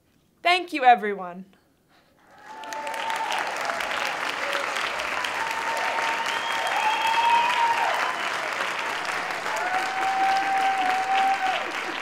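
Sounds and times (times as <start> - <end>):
audience applauding: 2.2 - 12.0
drawn-out cheering cries: 2.4 - 12.0.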